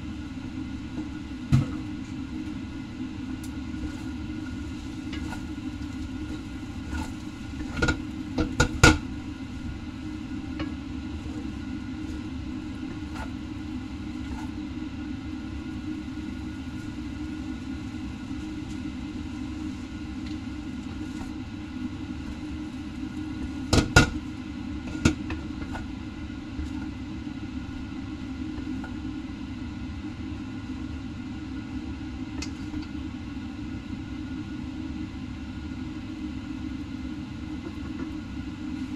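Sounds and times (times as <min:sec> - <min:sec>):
steady low hum: 0:00.0 - 0:38.9
utensils knocking on metal wok: 0:07.6 - 0:09.0, 0:23.7 - 0:24.2.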